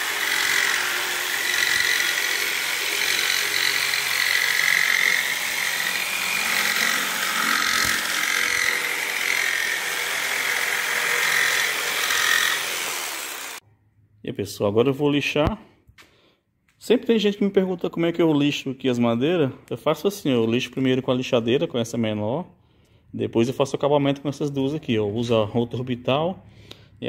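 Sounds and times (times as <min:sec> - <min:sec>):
jigsaw cutting wood: 0:00.0 - 0:13.6.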